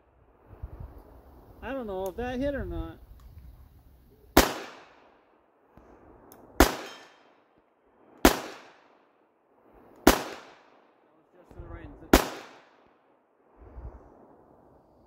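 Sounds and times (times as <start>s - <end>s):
handgun shots echoing: 4.4s - 5.0s, 6.6s - 7.4s, 10.0s - 10.6s, 12.2s - 12.8s.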